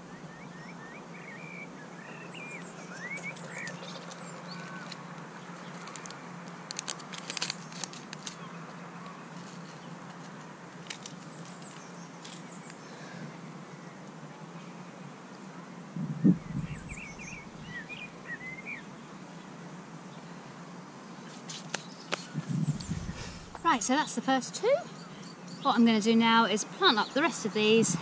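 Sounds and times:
small birds chirping: 0.0s - 14.9s, 16.1s - 28.0s
faint outdoor hum: 0.0s - 28.0s
seed packet rustling: 5.6s - 8.5s.

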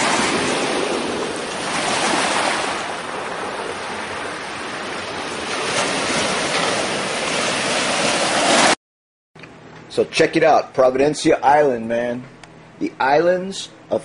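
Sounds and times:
small waves washing onto sand: 0.0s - 8.8s.

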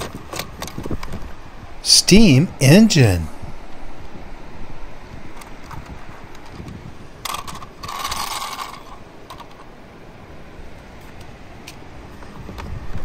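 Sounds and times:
toy wheels clattering whir: 7.3s - 9.5s.

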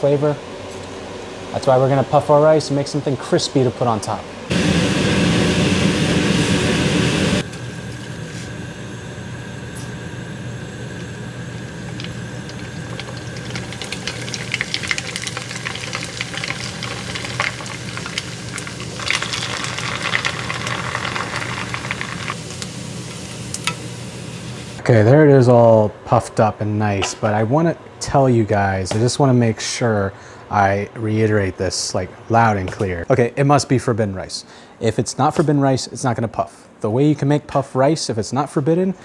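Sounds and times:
rice sizzling and crackling in oil: 11.9s - 24.8s.

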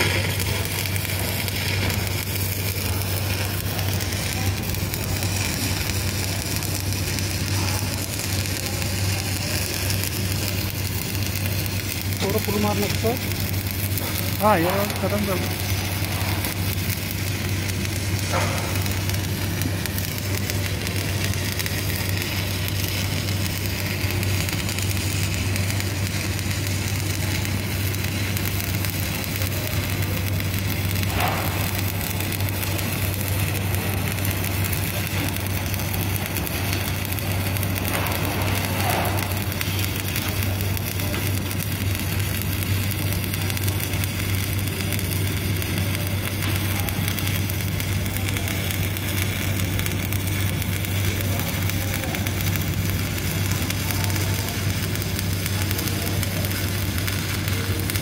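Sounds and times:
welding arc crackling sizzle: 0.0s - 58.0s.

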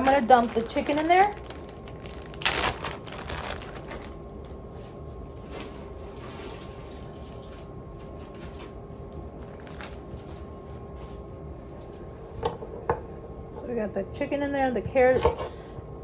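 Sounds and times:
shredded chicken rustling: 0.0s - 4.2s
faint steady hum: 0.0s - 16.0s.

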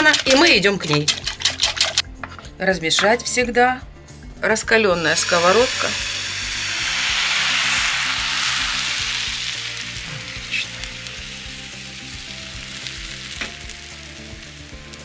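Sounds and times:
batter sizzling in frying pan: 5.0s - 15.0s.

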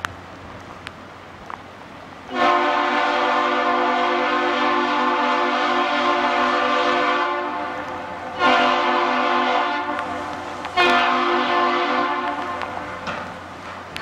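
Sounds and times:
ship's horn blasts: 2.3s - 13.4s.

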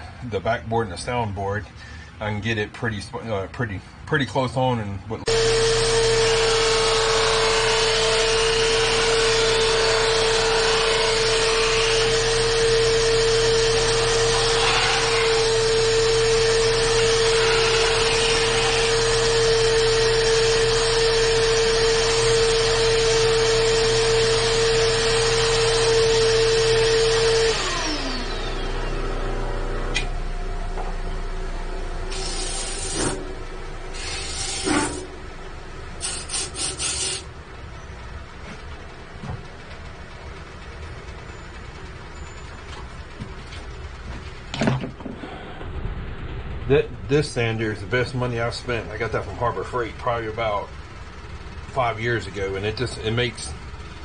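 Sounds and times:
motor winding down: 5.3s - 37.4s
disc sander whining: 5.3s - 54.0s
hiss: 33.9s - 35.0s, 36.0s - 37.3s.

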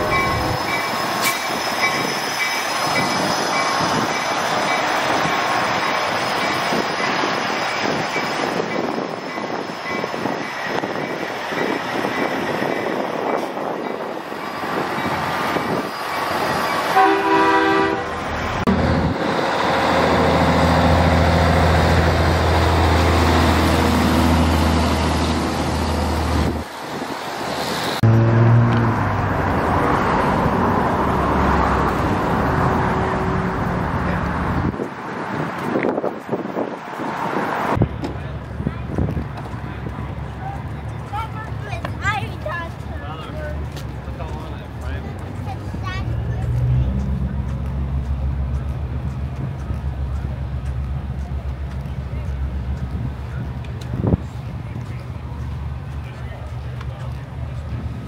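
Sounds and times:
trucks driving past: 14.6s - 58.0s
truck horn: 17.0s - 18.2s, 28.0s - 28.8s.

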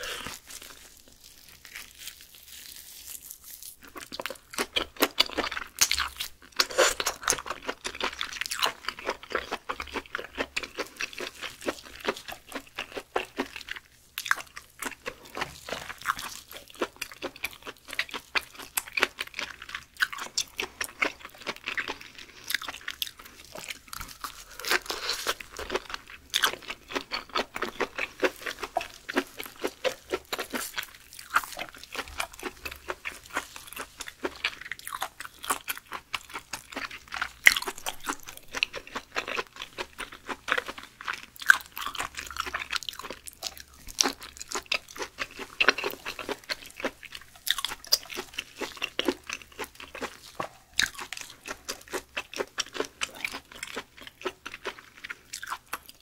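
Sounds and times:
chewing and biting meat: 0.0s - 56.0s.

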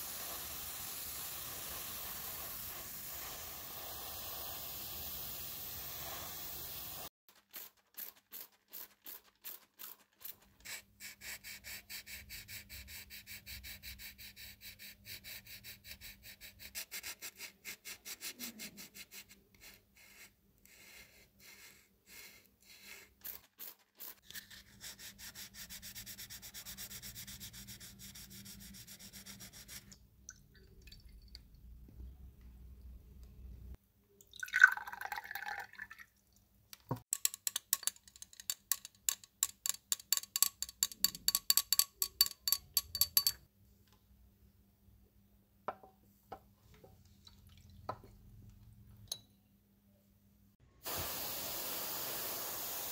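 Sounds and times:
sandpaper rubbing: 7.3s - 29.9s.

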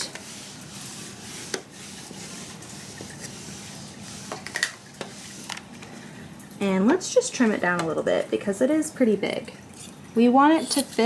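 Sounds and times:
iron rubbing over fabric: 0.0s - 5.5s.

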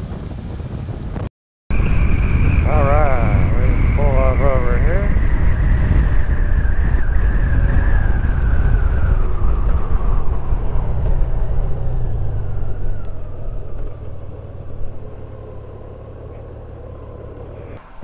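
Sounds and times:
wind and road noise: 0.0s - 18.0s
motorcycle engine whine: 1.7s - 18.0s.

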